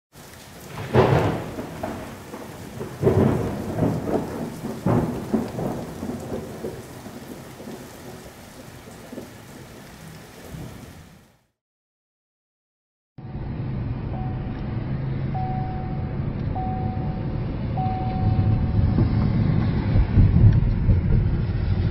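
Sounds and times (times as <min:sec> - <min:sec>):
steady rain: 0:00.1 - 0:11.6
thunder claps and rumbles: 0:00.2 - 0:09.8, 0:16.4 - 0:21.9.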